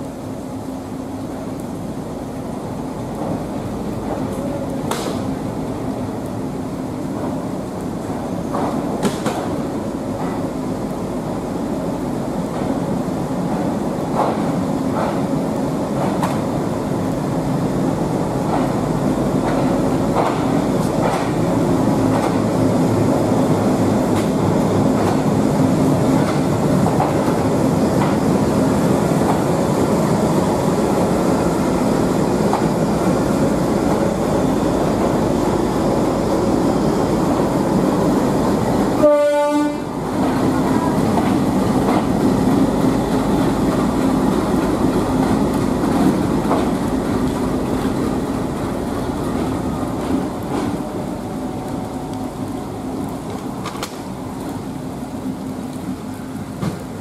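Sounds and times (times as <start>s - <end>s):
diesel locomotive engine droning: 0.0s - 57.0s
train wheels clicking on rails: 0.0s - 57.0s
train horn blast: 39.0s - 40.0s.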